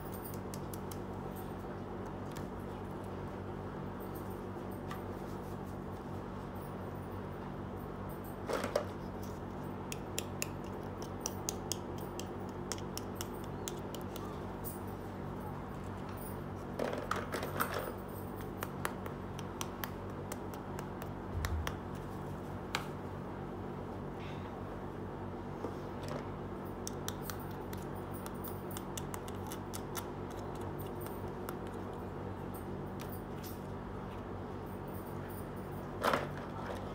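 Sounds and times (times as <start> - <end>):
steady low hum: 0.0 - 36.9.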